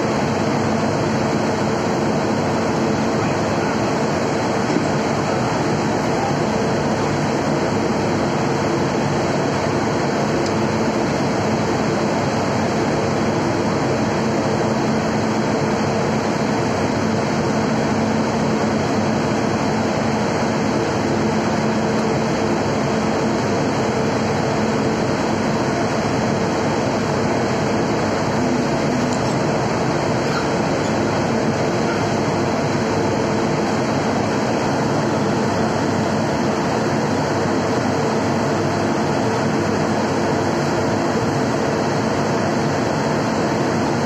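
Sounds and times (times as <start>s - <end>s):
locomotive engine idling: 18.6s - 35.9s.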